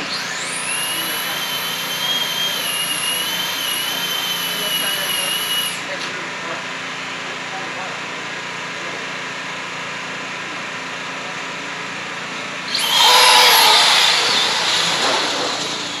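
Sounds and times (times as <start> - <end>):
rc car motors whining: 0.0 - 6.1, 12.6 - 16.0.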